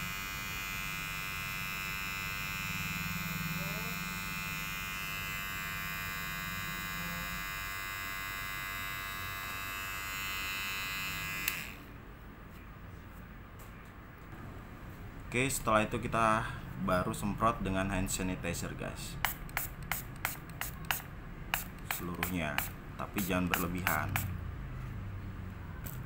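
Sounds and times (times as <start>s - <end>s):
electric hair clipper buzzing: 0.0s - 11.9s, 19.3s - 24.4s
razor blade scraping clipper blades: 0.2s - 11.8s, 19.2s - 24.3s.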